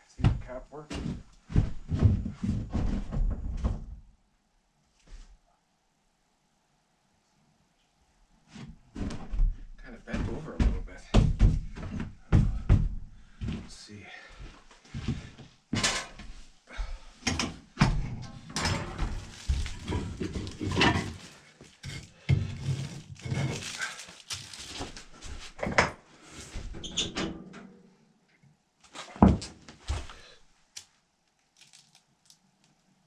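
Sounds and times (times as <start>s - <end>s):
rustling: 18.4s - 25.6s.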